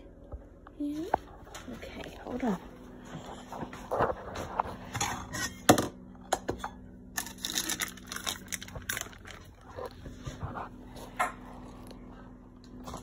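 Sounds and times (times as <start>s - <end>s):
packaging crinkling: 7.2s - 10.0s.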